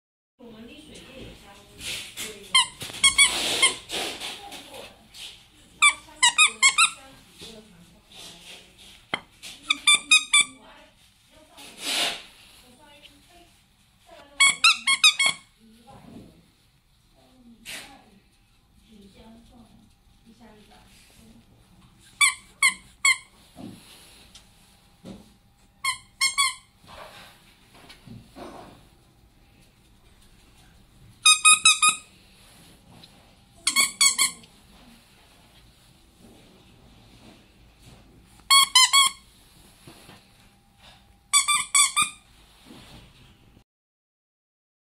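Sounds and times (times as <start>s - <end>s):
dog toy squeaking: 2.5s - 3.9s, 5.8s - 7.0s, 9.6s - 10.6s, 14.4s - 15.5s, 22.2s - 23.3s, 25.8s - 26.7s, 31.2s - 32.1s, 33.6s - 34.5s, 38.5s - 39.2s, 41.3s - 42.2s.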